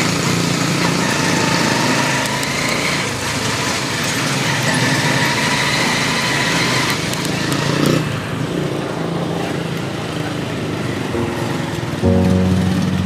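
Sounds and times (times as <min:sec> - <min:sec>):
small motorcycle engine running: 0:00.0 - 0:09.4.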